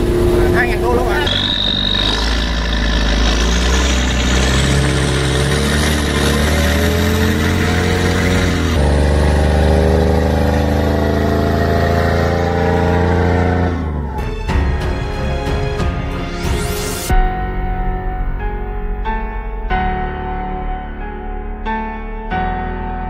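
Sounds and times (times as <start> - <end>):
diesel engine running hard: 0.0 - 14.3.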